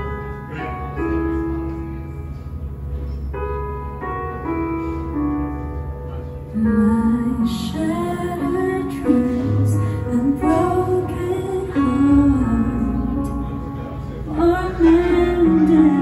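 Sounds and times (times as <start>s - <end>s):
guitar: 0.0s - 16.0s
keyboard: 0.0s - 16.0s
woman singing a slow ballad: 6.5s - 13.7s, 14.3s - 16.0s.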